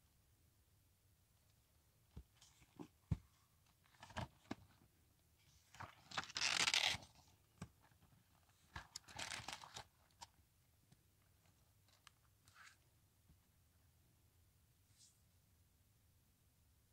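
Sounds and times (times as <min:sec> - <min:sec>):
paper pages rustling: 0:05.7 - 0:07.1, 0:08.4 - 0:09.9.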